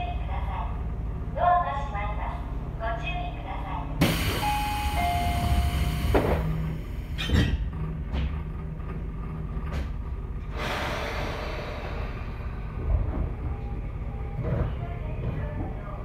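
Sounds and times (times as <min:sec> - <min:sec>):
train doors closing with thumps: 0:04.0 - 0:08.4.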